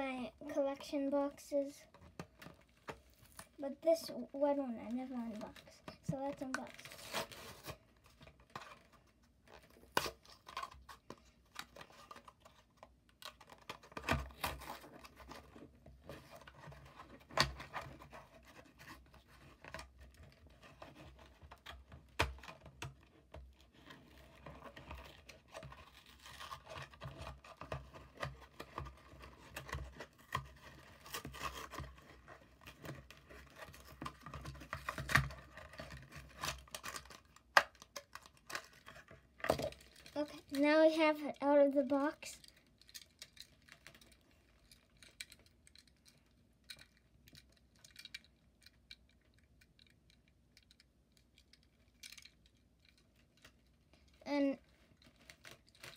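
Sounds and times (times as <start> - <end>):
plastic packaging tearing and crinkling: 4.8 - 40.6, 54.6 - 55.9.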